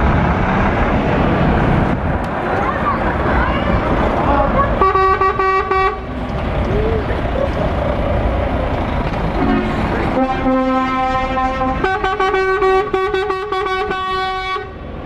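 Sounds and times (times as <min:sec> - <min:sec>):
truck diesel engine passing: 0:00.0 - 0:15.0
truck air horn: 0:04.3 - 0:06.1, 0:09.4 - 0:14.8.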